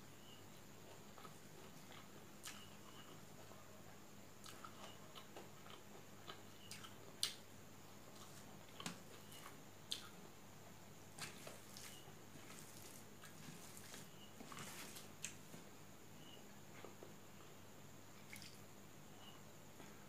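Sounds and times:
chewing and mouth smacks: 1.2s - 3.2s, 4.4s - 7.4s
fingers squishing food: 4.4s - 7.4s.

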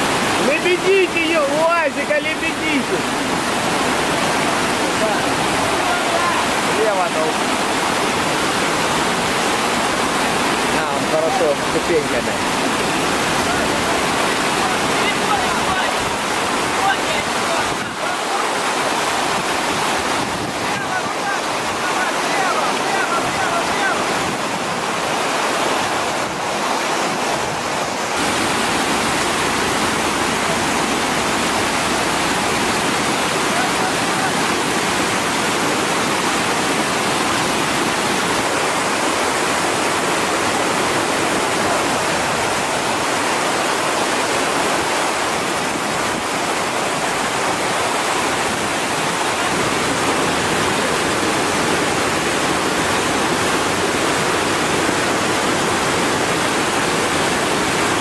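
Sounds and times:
flowing water rushing: 0.0s - 58.0s.

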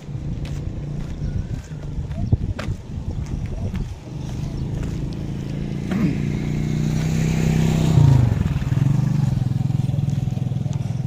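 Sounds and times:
motorcycle passing by: 2.9s - 11.0s.

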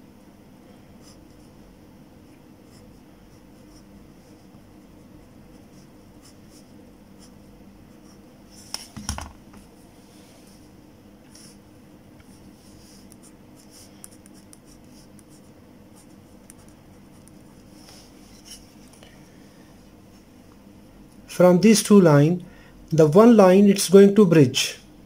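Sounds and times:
pen scratching on paper: 5.5s - 7.4s, 12.8s - 17.6s
board knocking on table: 9.0s - 9.4s.

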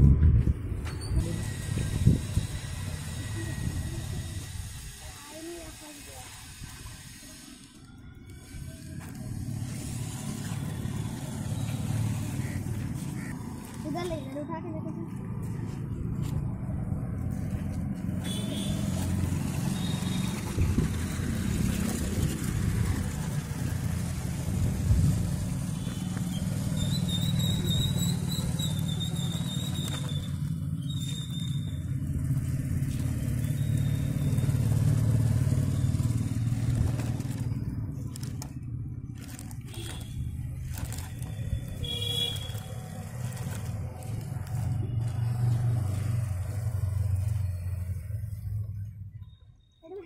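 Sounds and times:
toy electric motor whine: 1.2s - 11.6s.

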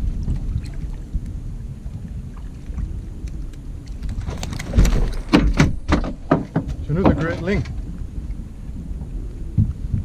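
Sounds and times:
wind rumbling on microphone: 0.0s - 10.0s
loud splashes and knocks: 4.2s - 7.8s.

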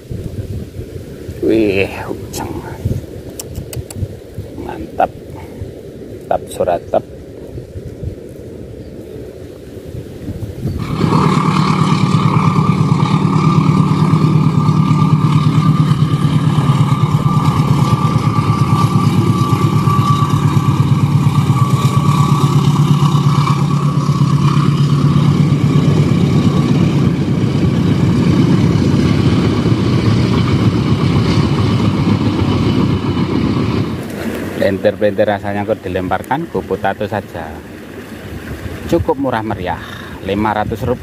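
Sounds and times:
diesel train engine drone: 1.4s - 38.6s
train carriages rumbling: 9.8s - 41.0s.

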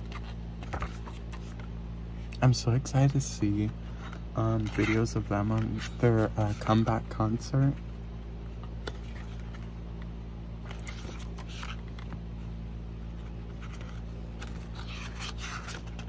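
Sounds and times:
paper rustles: 0.0s - 1.7s, 3.9s - 7.0s, 10.6s - 12.2s, 13.1s - 16.0s
glossy paper pages turning: 0.0s - 2.4s, 3.0s - 7.8s, 8.5s - 12.5s, 13.1s - 16.0s
steady low hum: 0.0s - 16.0s.

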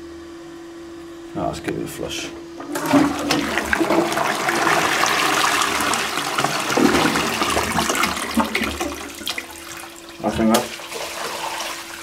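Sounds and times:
toilet water rushing: 2.6s - 12.0s.

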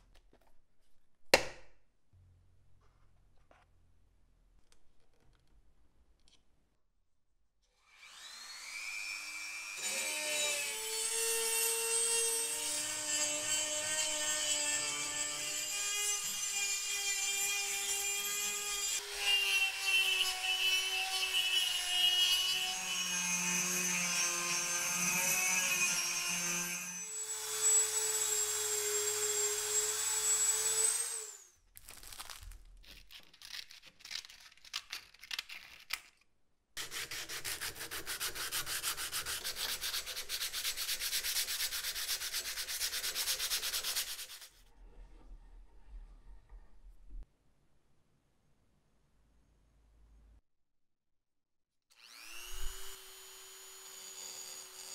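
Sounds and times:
scissors cutting sandpaper: 32.8s - 36.0s, 36.8s - 44.6s
rotary tool whining: 52.0s - 54.9s.

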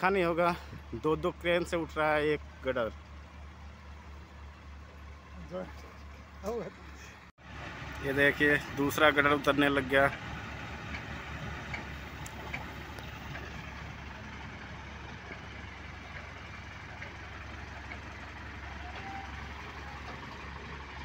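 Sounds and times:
diesel crane engines running: 0.0s - 21.0s
faint clicks: 11.7s - 13.5s.

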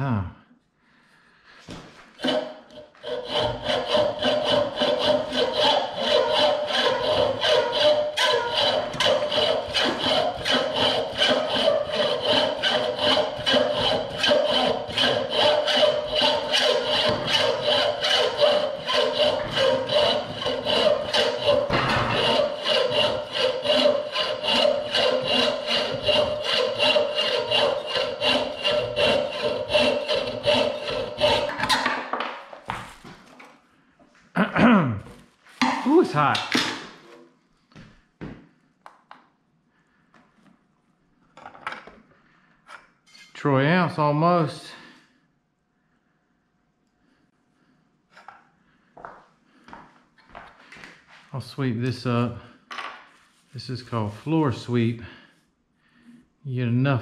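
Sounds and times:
hacksaw cutting metal: 2.2s - 32.1s.

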